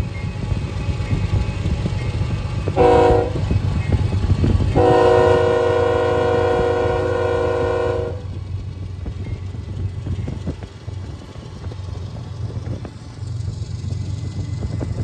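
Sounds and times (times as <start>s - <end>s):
low rumble of moving train: 0.0s - 15.0s
locomotive air horn blasts: 2.7s - 3.5s, 4.7s - 8.4s.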